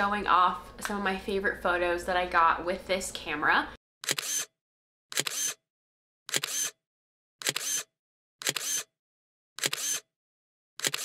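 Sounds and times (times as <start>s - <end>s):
camera shutter click: 4.0s - 4.5s, 5.1s - 5.6s, 6.3s - 6.8s, 7.4s - 8.9s, 9.6s - 10.1s, 10.8s - 11.0s
motorized film advance whir: 5.1s - 5.6s, 6.3s - 6.8s, 7.4s - 8.9s, 9.6s - 10.1s, 10.8s - 11.0s.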